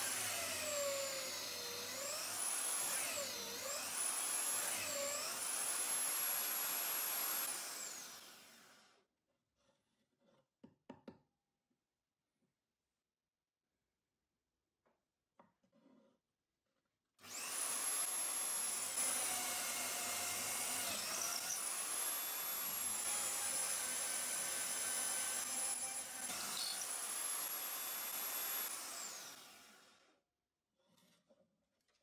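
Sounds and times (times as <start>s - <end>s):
drill bit boring through wood: 0.0s - 8.9s, 17.2s - 30.0s
electric drill whining: 0.0s - 8.9s, 17.2s - 30.0s.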